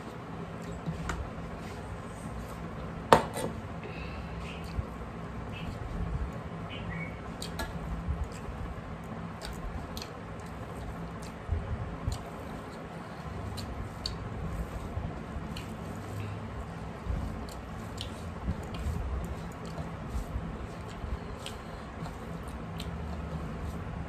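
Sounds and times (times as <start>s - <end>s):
fingers mixing food on plates: 0.0s - 3.8s, 4.4s - 24.0s
steady low hum: 0.0s - 24.0s
wet chewing: 7.4s - 16.0s, 17.2s - 23.8s.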